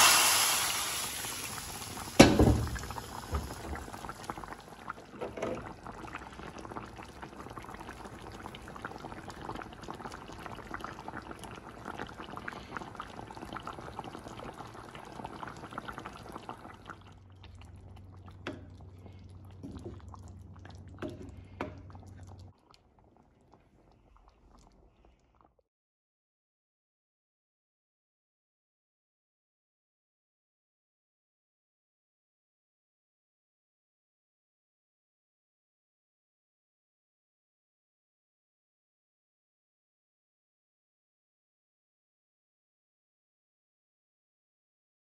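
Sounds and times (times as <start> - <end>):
pot boiling with bubbling and popping: 0.0 - 25.7
low steady hum: 16.9 - 22.5.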